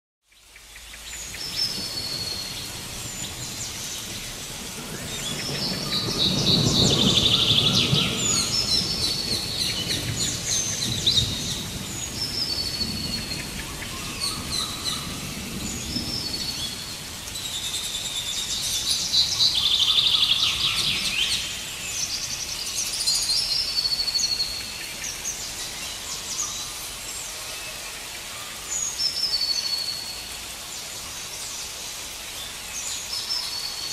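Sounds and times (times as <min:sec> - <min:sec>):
steady hiss: 0:00.3 - 0:33.9
birds calling and chirping: 0:00.4 - 0:27.3.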